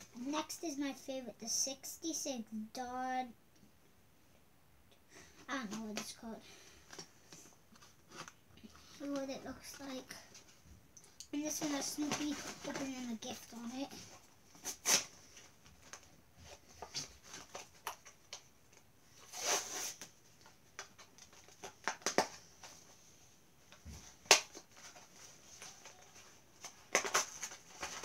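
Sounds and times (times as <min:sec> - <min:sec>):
plastic and card crinkling: 0:11.4 - 0:23.0, 0:23.6 - 0:28.0.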